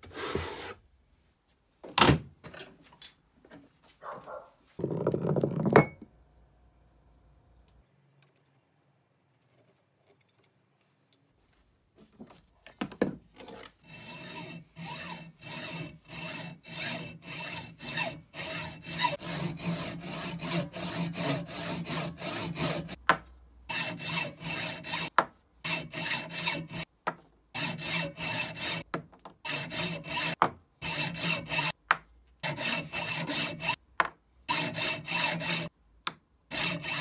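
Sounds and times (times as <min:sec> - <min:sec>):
hacksaw cutting metal rod: 0:13.8 - 0:23.0, 0:23.7 - 0:25.1, 0:25.7 - 0:26.9, 0:27.6 - 0:28.9, 0:29.5 - 0:31.8, 0:32.4 - 0:33.8, 0:34.5 - 0:35.7, 0:36.5 - 0:37.0.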